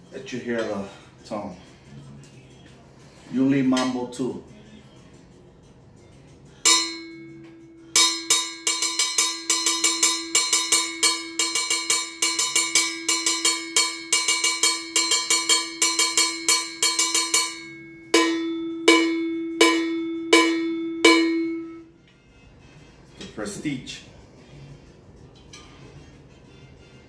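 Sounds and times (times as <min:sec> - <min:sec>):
cowbell struck with a stick: 0:06.6 - 0:21.8.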